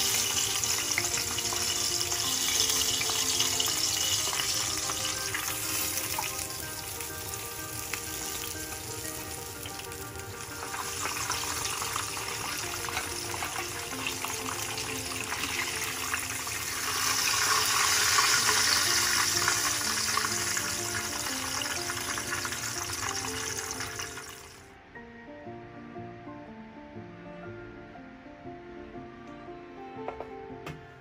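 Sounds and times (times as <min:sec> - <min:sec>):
oil crackling and sizzling: 0:00.0 - 0:24.7
background music: 0:00.0 - 0:31.0.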